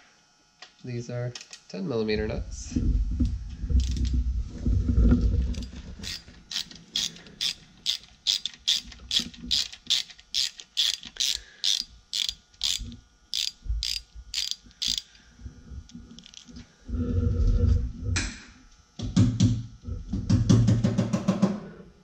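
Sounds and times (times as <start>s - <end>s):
low rumble of handling noise: 2.0s - 10.3s, 12.5s - 18.9s
socket ratchet clicking: 6.0s - 15.1s.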